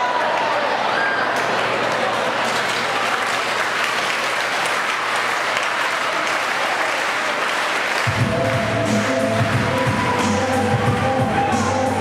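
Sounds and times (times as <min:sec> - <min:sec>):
crowd applauding: 0:01.3 - 0:12.0
music with heavy bass: 0:08.1 - 0:12.0.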